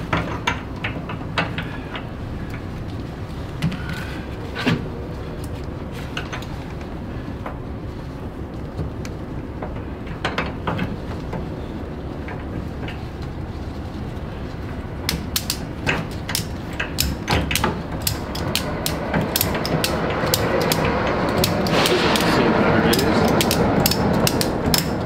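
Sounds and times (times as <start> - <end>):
ratchet strap pawl clicking: 15.1 - 22.3, 22.9 - 25.0
low rumble: 17.8 - 25.0.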